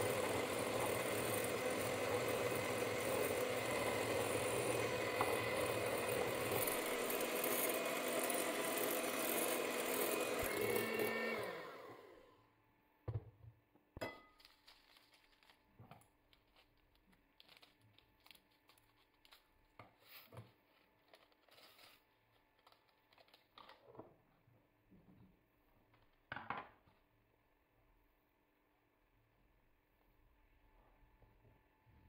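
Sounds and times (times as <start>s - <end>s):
electric hand mixer running: 0.0s - 12.4s
scissors cutting plastic: 14.4s - 23.9s
plastic packet crinkling: 14.5s - 19.5s.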